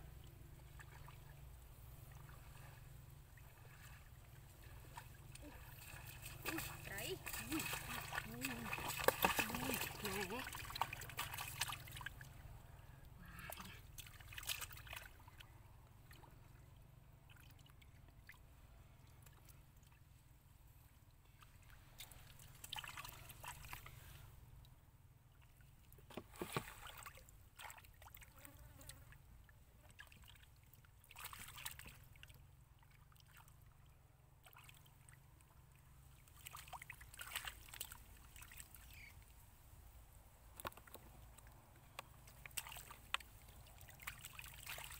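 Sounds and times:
low steady rumble: 0.0 - 26.1
splashing in shallow water: 0.2 - 12.6, 13.2 - 16.4, 21.3 - 24.2, 25.4 - 29.2, 29.8 - 33.6, 34.4 - 39.3, 40.5 - 44.9.

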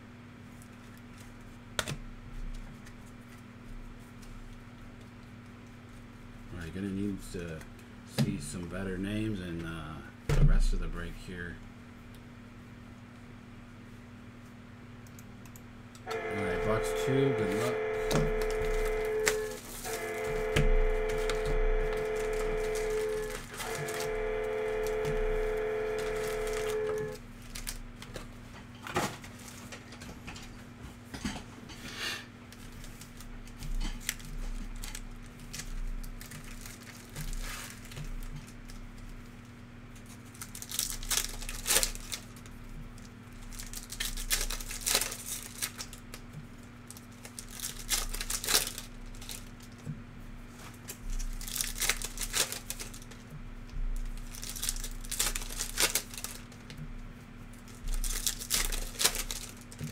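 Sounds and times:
held electronic tone: 16.1 - 27.2
cards being handled: 16.1 - 28.3
foil wrappers tearing and crinkling: 16.1 - 29.7, 32.5 - 53.3, 54.0 - 56.8, 57.4 - 59.9.

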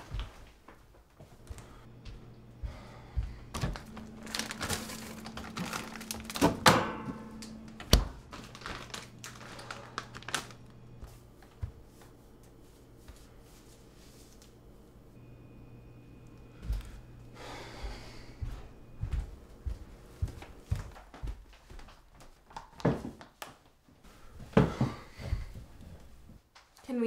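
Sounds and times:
frozen plastic bag crinkling: 3.5 - 11.1
refrigerator door thunk: 6.3 - 7.2.

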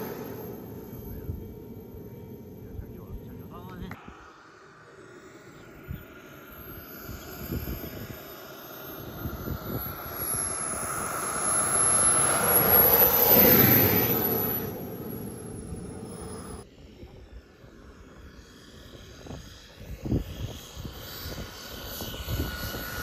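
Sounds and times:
thin high whine: 0.0 - 16.6
model airplane motor passing: 0.0 - 23.0.

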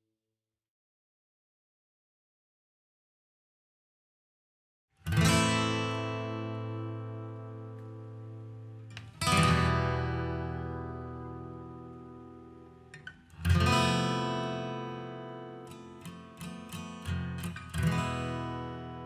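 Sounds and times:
acoustic guitar chords strummed: 5.0 - 19.0.

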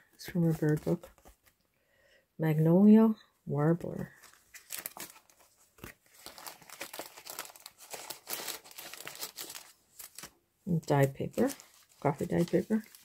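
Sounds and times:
paper pages rustling and crinkling: 0.2 - 1.6, 4.0 - 13.0.

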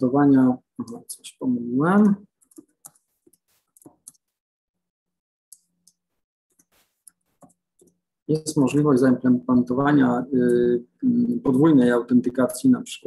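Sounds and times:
keyboard and mouse clicks: 2.4 - 4.3.

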